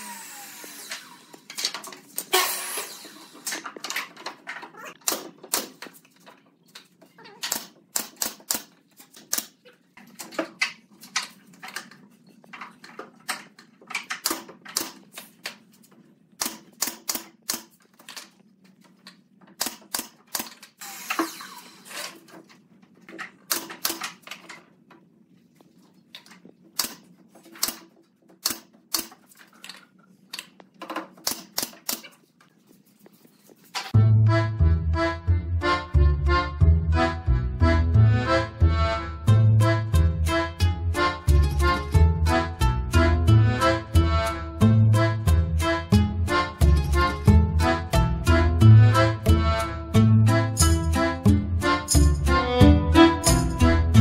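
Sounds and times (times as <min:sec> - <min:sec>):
nail gun firing into boards: 0:05.0 - 0:06.0, 0:07.4 - 0:09.6, 0:14.0 - 0:15.2, 0:16.4 - 0:18.2, 0:19.6 - 0:22.2, 0:23.5 - 0:24.4, 0:26.8 - 0:29.3, 0:30.9 - 0:32.2.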